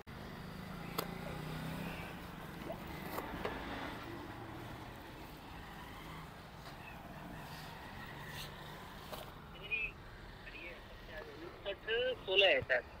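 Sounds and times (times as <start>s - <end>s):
road traffic hum: 0.0s - 13.0s
clicks and handling noises: 2.6s - 3.6s.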